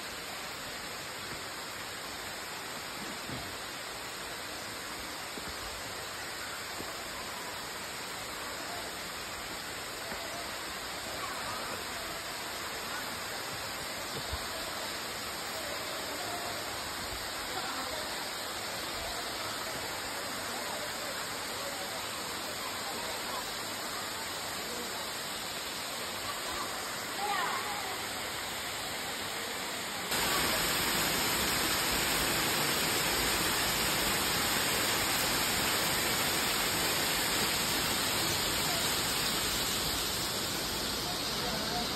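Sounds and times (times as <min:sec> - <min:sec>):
waterfall rushing over rock ledges: 0:00.0 - 0:41.9.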